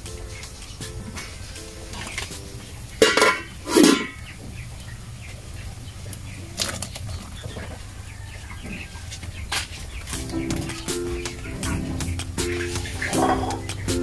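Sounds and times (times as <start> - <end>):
metal pot lid clanking: 3.0 - 4.2, 12.5 - 13.6.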